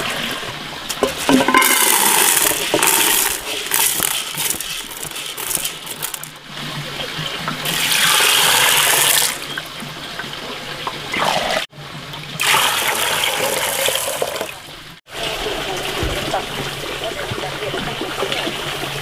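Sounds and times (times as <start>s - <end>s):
water pouring into pot: 0.0s - 6.7s, 7.6s - 9.5s, 12.4s - 14.6s
beans rattling into metal pot: 1.0s - 6.4s, 7.7s - 9.4s.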